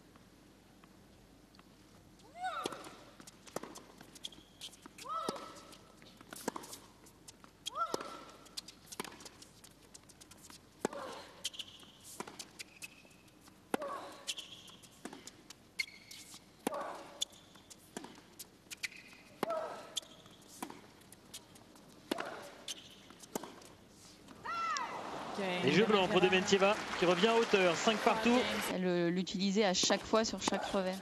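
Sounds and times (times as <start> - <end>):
shoe squeaks on court: 3.2 - 23.7
racket striking tennis ball: 5.2 - 6.9, 22.0 - 23.7, 30.3 - 31.0.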